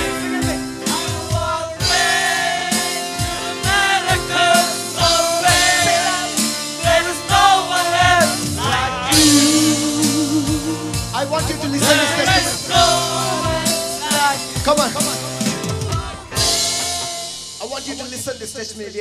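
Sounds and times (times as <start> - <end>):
singing over a band: 0.0 - 17.6
drum beat and cymbals: 0.0 - 19.0.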